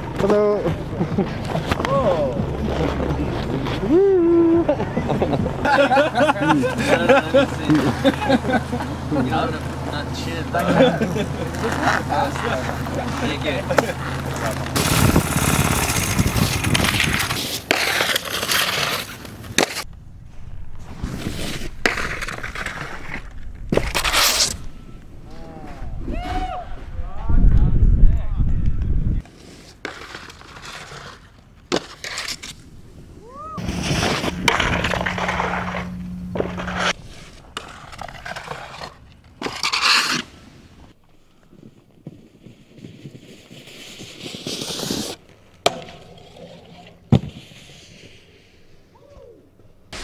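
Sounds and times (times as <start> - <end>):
snowboard scraping over snow: 10.6 - 19.8, 33.6 - 40.7, 42.2 - 45.2.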